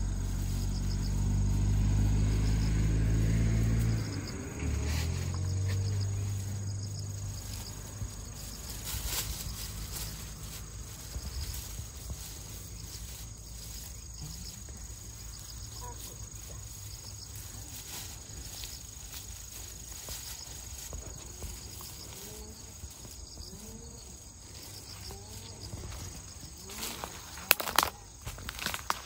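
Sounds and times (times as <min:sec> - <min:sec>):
insects chirring: 0:00.0 - 0:29.0.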